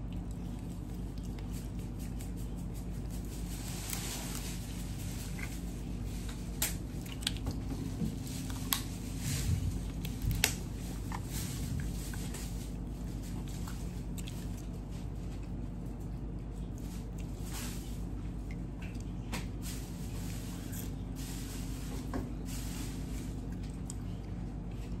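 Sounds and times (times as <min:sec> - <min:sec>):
wet picking and eating: 0:00.0 - 0:25.0.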